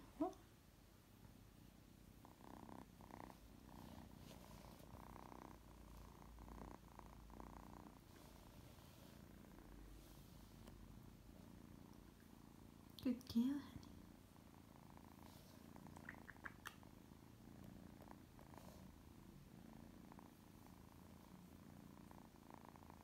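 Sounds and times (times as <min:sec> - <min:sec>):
kitten purring: 0:00.0 - 0:23.0.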